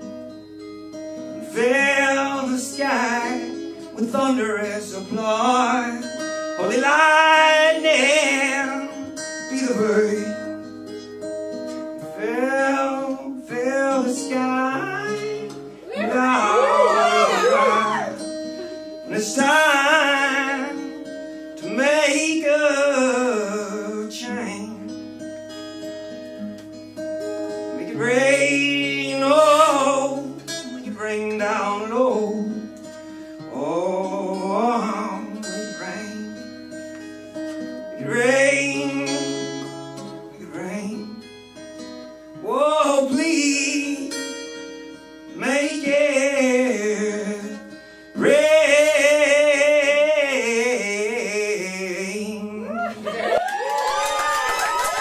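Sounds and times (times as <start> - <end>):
acoustic guitar: 0.0 - 55.0
man singing: 1.4 - 10.7, 12.0 - 18.3, 19.0 - 25.1, 27.7 - 32.8, 33.4 - 36.8, 37.8 - 41.3, 42.4 - 44.5, 45.3 - 53.2.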